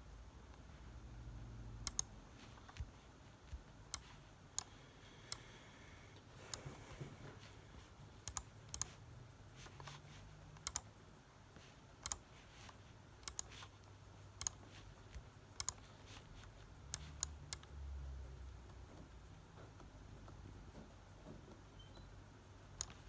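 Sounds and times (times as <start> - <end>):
laptop keyboard keys clicking: 1.8 - 5.5, 8.2 - 9.0, 9.6 - 10.9, 12.0 - 17.8, 22.7 - 23.0.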